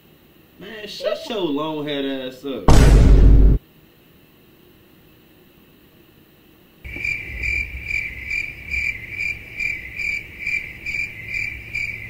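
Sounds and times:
cricket chirping: 0:03.6 - 0:12.0.

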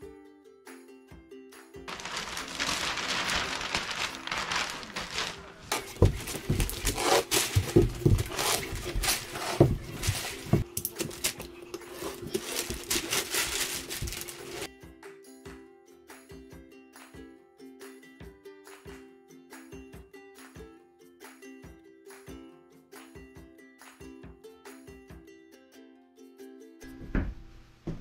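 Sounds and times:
plastic sheeting crinkling: 0:01.9 - 0:14.7
knocks on floor: 0:27.0 - 0:28.0.

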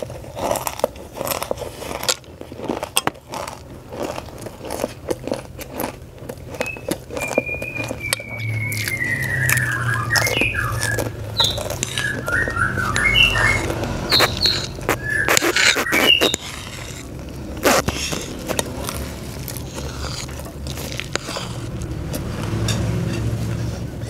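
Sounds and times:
potato chips crunching: 0:00.0 - 0:24.0
high chirping whistles: 0:06.6 - 0:16.5.

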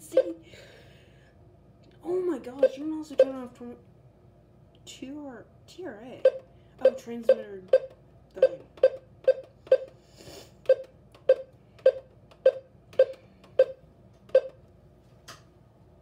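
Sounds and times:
short key-press beeps: 0:06.2 - 0:09.9, 0:10.7 - 0:14.6.

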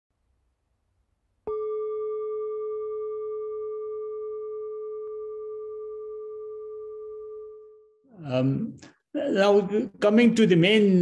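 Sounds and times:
singing bowl ringing: 0:01.5 - 0:08.0.

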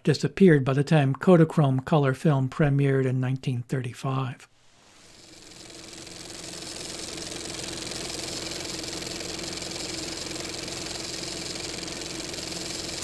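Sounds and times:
projector motor hum: 0:04.9 - 0:13.0
film clattering through projector: 0:05.1 - 0:13.0.

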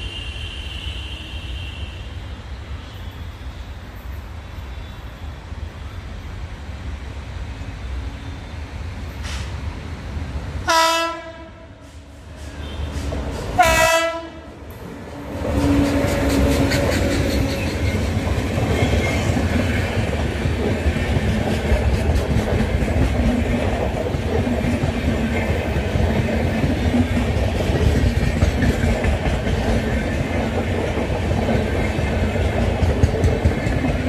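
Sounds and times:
train passing rumble: 0:00.0 - 0:34.0
locomotive horn blasts: 0:10.7 - 0:11.8, 0:13.6 - 0:14.5
wheels clicking over rail joints: 0:14.7 - 0:34.0.

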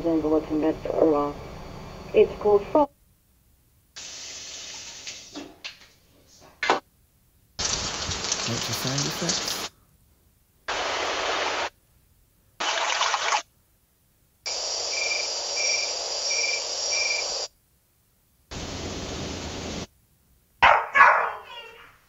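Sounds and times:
insects chirping and buzzing: 0:14.5 - 0:17.5
dog barking: 0:20.6 - 0:22.0.

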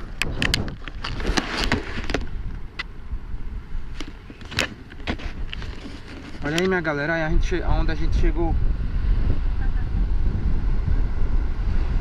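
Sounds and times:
wind rumbling on microphone: 0:00.0 - 0:12.0
camera handling clicks and knocks: 0:00.2 - 0:02.9, 0:04.0 - 0:06.7.

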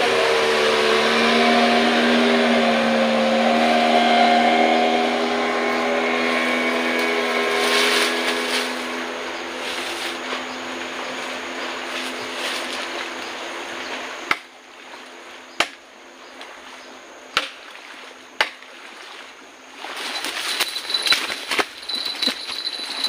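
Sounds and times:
boat motor running: 0:00.0 - 0:15.6, 0:20.2 - 0:23.0
water washing on riverbank: 0:00.0 - 0:16.8, 0:17.4 - 0:23.0.

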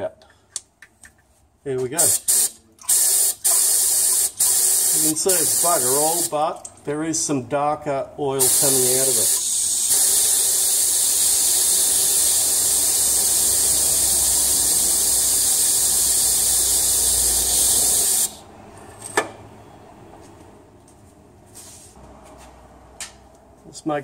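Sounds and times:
compressed air nozzle hissing: 0:02.0 - 0:06.3, 0:08.4 - 0:18.5.

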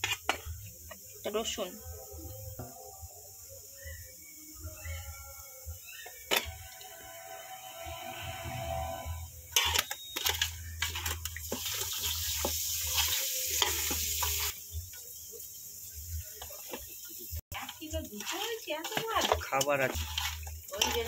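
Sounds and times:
wet squelching of hand mixing: 0:17.5 - 0:21.0.

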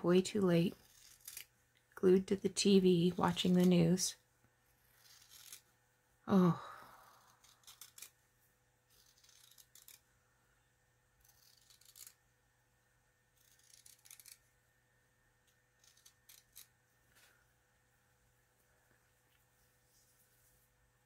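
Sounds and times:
scissors snipping fabric: 0:00.6 - 0:01.5, 0:05.0 - 0:05.7, 0:07.2 - 0:08.2, 0:08.9 - 0:10.0, 0:11.2 - 0:12.2, 0:13.4 - 0:14.4, 0:15.7 - 0:16.8.

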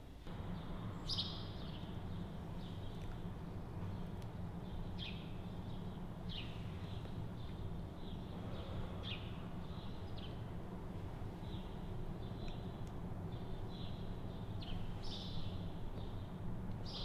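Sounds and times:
low background rumble: 0:00.0 - 0:17.0
small bird chirping: 0:00.5 - 0:03.2, 0:11.5 - 0:16.2.

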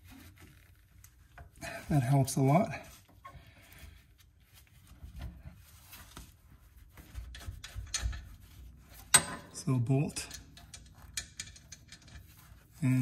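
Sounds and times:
wrench scraping and ticking: 0:10.2 - 0:13.0.

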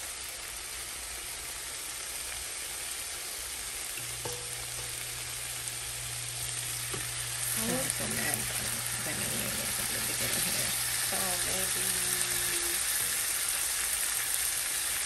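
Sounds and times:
meat sizzling in a frying pan: 0:00.0 - 0:15.0.

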